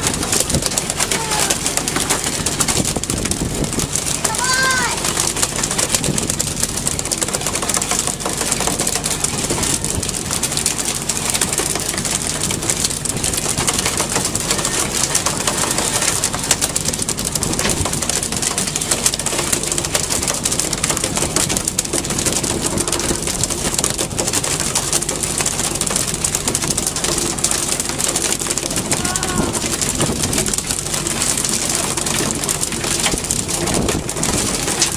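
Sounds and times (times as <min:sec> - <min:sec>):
boat engine running: 0:00.0 - 0:34.9
wind: 0:00.0 - 0:34.9
sea noise: 0:21.2 - 0:34.9.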